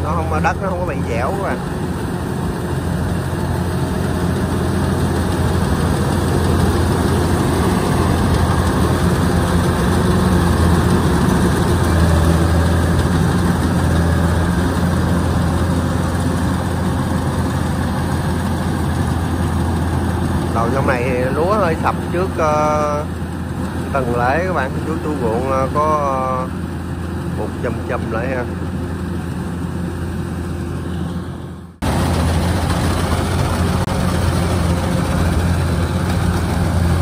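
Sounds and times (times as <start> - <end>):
combine harvester engine running: 0.0 - 37.0
machinery clatter: 0.1 - 23.0, 31.8 - 37.0.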